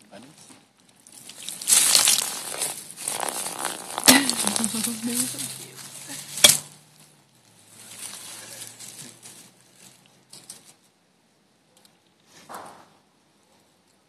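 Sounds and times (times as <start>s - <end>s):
rustling and crackling leaves: 0.0s - 11.1s.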